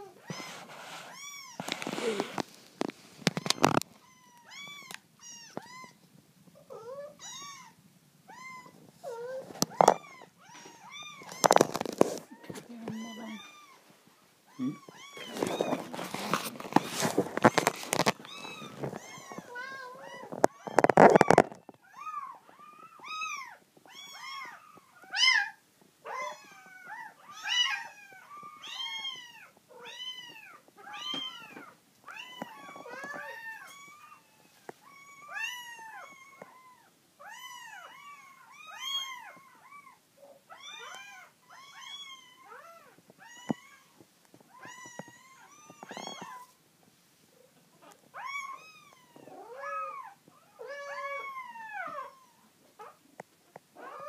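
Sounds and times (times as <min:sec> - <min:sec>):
kittens mewing: 0:06.7 - 0:13.8, 0:14.5 - 0:46.5.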